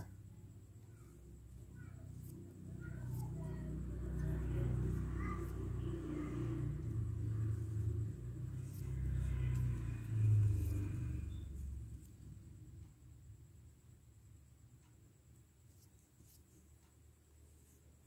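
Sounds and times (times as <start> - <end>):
low rumble: 3.4 - 14.4.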